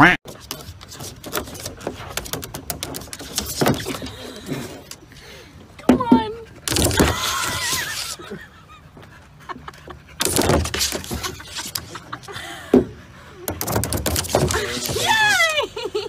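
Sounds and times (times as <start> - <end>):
dog scraping down plastic slide: 0.3 - 5.0, 6.6 - 8.2, 10.2 - 12.1, 13.6 - 15.4.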